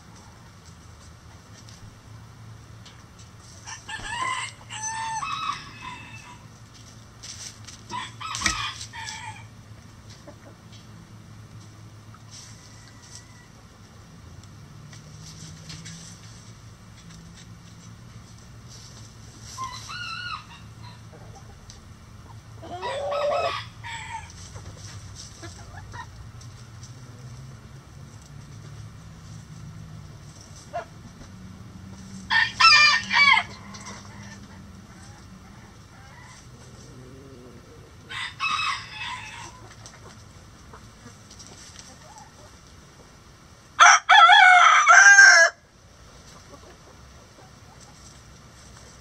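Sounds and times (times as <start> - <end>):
rooster crowing: 3.7 - 6.5, 7.9 - 9.5, 19.6 - 21.1, 22.6 - 24.3, 32.3 - 34.1, 38.1 - 39.6, 43.8 - 45.6
hens clucking: 7.9 - 11.0, 18.3 - 27.0, 31.9 - 43.2, 46.0 - 49.0.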